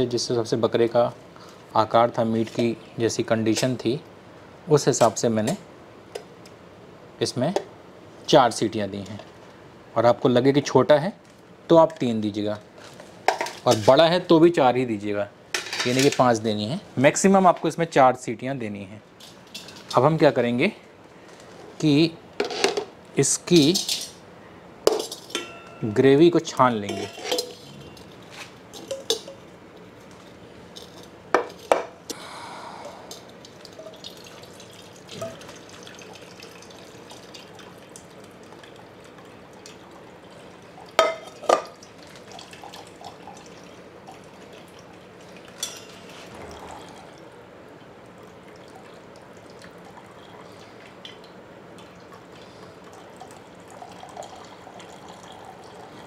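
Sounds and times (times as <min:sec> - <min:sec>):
steel utensils clinking: 0:23.5 - 0:24.2, 0:24.9 - 0:26.2, 0:26.8 - 0:28.1, 0:45.6 - 0:46.1
gravy dripping through strainer: 0:33.2 - 0:56.0.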